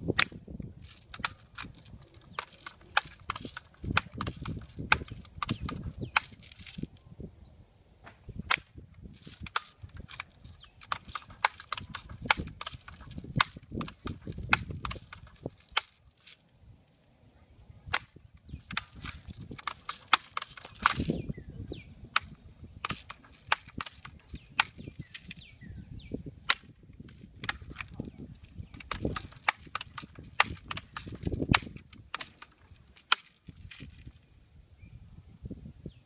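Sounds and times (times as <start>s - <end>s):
sharp clicks and snaps: 0.1s - 6.9s, 8.5s - 16.0s, 17.9s - 21.2s, 22.1s - 25.4s, 26.5s - 34.1s.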